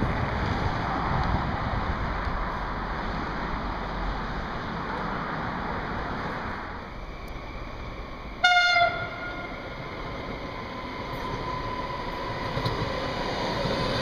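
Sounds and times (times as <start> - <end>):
train rushing noise: 0.0 - 14.0
train horn note: 8.4 - 9.6.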